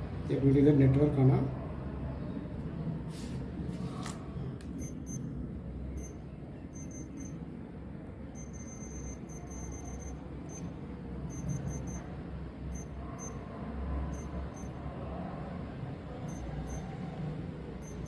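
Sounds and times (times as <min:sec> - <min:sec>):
keypad beeps: 0:04.8 - 0:05.3, 0:05.9 - 0:07.4, 0:08.3 - 0:12.1, 0:12.7 - 0:13.4, 0:14.1 - 0:14.8, 0:16.3 - 0:17.0, 0:17.8 - 0:18.0.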